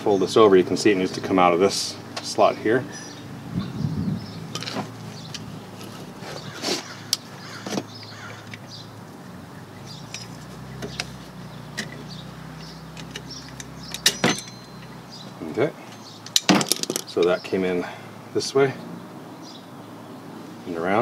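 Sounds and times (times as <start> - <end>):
small metallic clicks and clinks: 10.0 - 11.1, 12.6 - 15.0.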